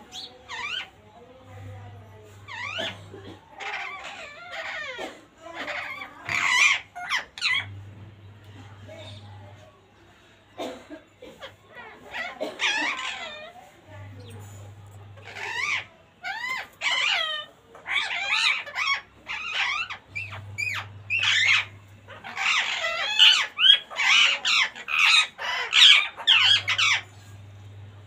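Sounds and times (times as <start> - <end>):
parakeets squawking: 0.0 - 9.6, 11.3 - 28.0.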